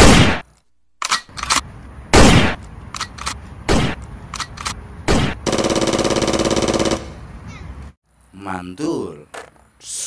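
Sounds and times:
single gunshots: 0.0s - 0.4s, 2.1s - 2.6s, 3.7s - 4.0s, 5.1s - 5.6s
automatic gunfire burst: 5.2s - 7.1s.

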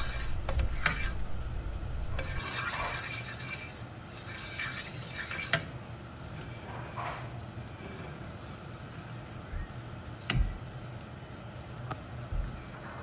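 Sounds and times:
spoon scraping around pan: 0.0s - 1.3s, 2.1s - 8.1s.

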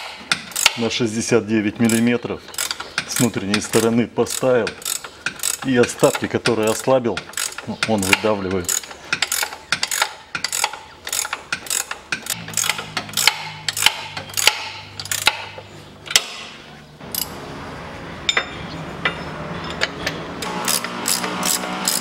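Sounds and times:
ratchet wrench clicking: 0.0s - 0.8s, 1.9s - 16.3s, 20.6s - 22.0s.

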